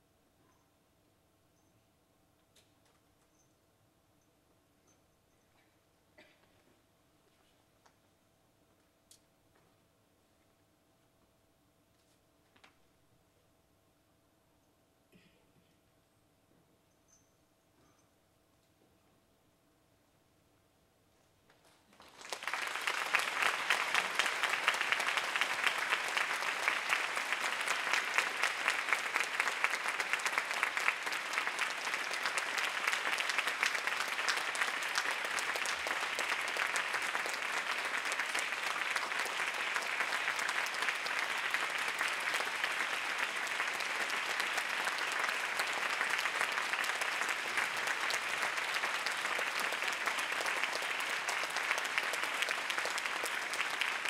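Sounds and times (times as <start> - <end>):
audience applauding: 21.9 - 54.0.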